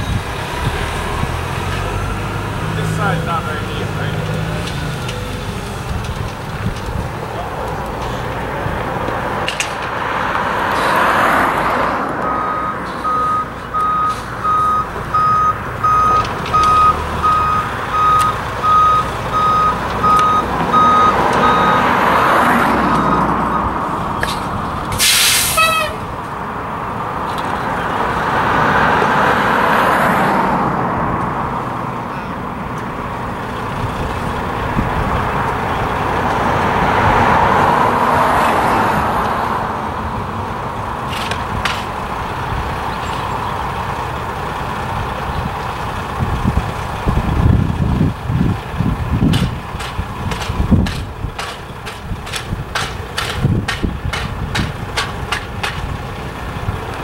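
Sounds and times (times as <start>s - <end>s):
diesel engine running: 0.0s - 29.7s, 30.3s - 57.0s
truck reversing alarm beeping: 12.2s - 24.3s
air brakes hiss: 24.9s - 26.0s.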